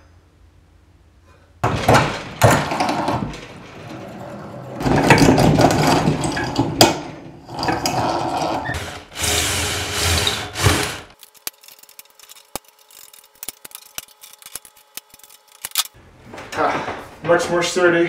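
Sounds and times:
drill press drilling metal: 7.5 - 11.2.

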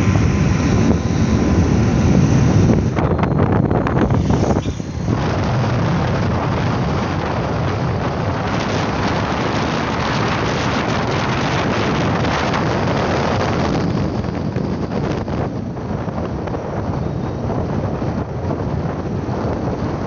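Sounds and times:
vehicle running and road noise: 0.0 - 20.0
wind rush on microphone: 0.0 - 20.0.

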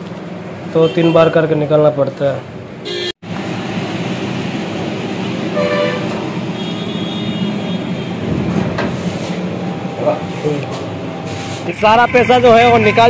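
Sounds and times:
road traffic: 0.0 - 13.0
higher longer horn tone: 5.5 - 8.3
short horn toot: 5.6 - 8.2.

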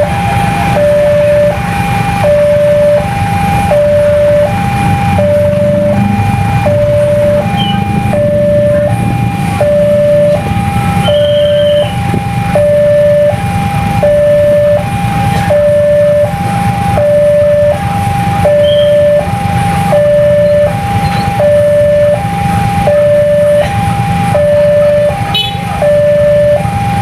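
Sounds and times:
two-tone level-crossing alarm: 0.0 - 27.0.

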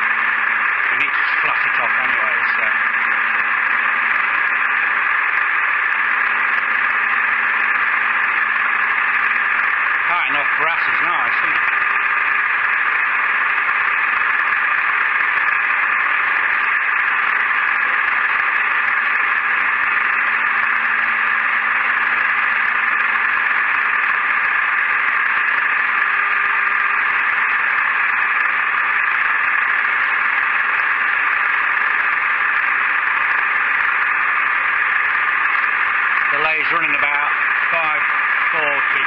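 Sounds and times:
metal lathe cutting brass: 0.0 - 39.0.

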